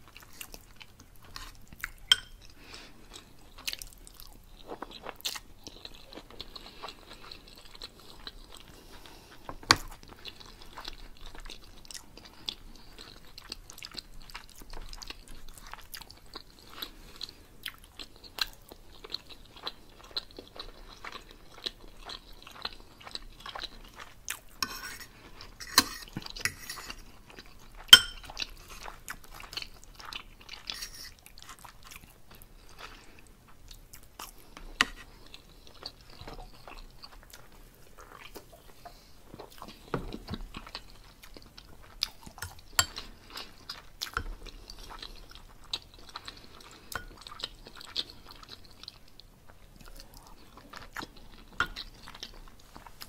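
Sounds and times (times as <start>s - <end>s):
person chewing food: 0.0s - 53.0s
cutlery clinking on plate: 2.1s - 2.4s, 28.0s - 28.3s.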